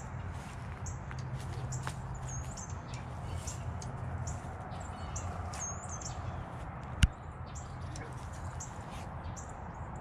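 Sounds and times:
bird chirps and calls: 0.8s - 6.5s.

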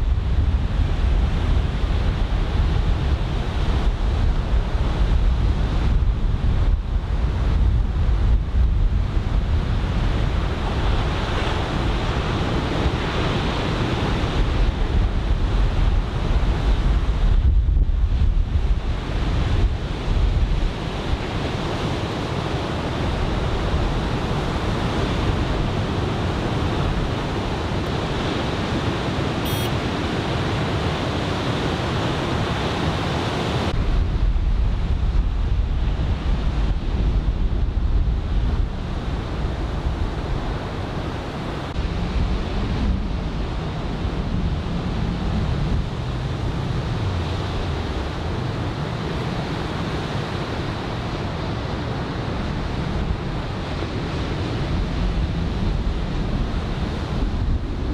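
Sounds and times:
wind buffeting microphone: 0.0s - 57.9s.

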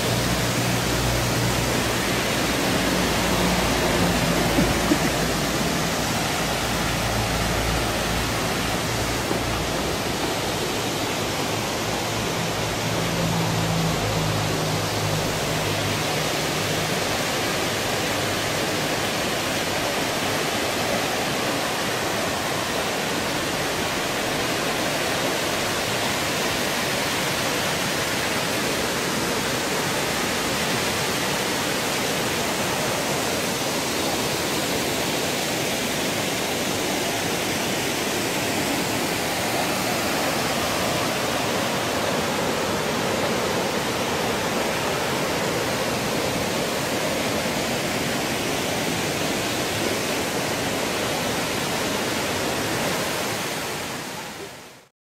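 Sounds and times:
waterfall rushing: 0.0s - 54.9s.

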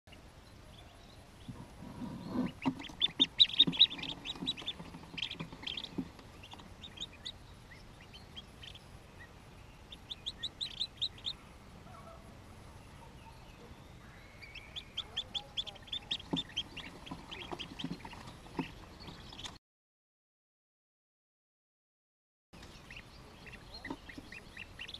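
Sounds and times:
ducklings peeping: 0.1s - 19.6s, 22.6s - 24.9s
soft knocks of ducklings moving: 1.4s - 8.8s, 14.7s - 19.6s, 22.6s - 24.9s.

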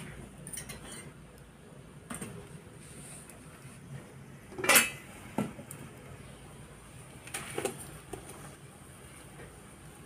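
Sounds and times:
metal cookware clattering: 0.4s - 1.2s, 4.5s - 5.1s.

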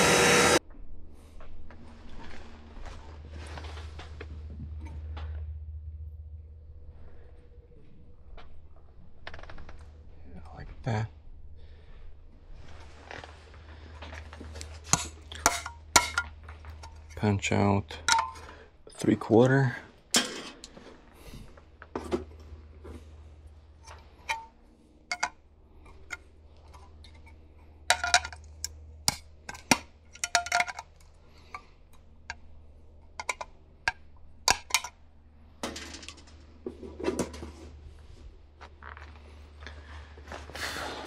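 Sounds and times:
metallic clinks and taps: 25.1s - 25.3s.

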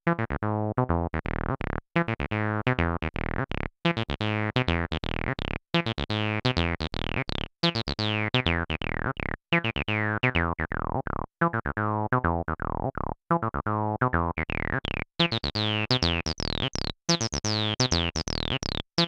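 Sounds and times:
squelchy acid synth bassline: 6.9s - 9.4s, 14.2s - 18.8s.

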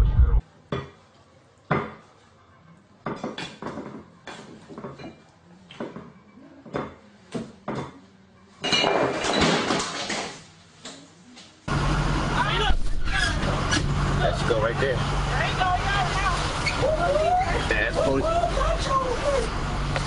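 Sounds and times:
dishes and cutlery clinking: 3.1s - 5.3s, 8.6s - 10.1s.

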